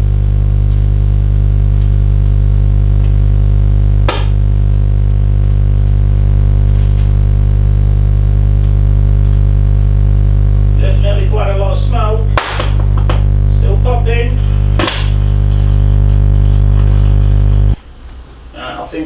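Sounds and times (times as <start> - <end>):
loud steady mains hum: 0.0 - 19.0
sharp crack: 4.0 - 4.5, 12.3 - 13.8, 14.7 - 17.2.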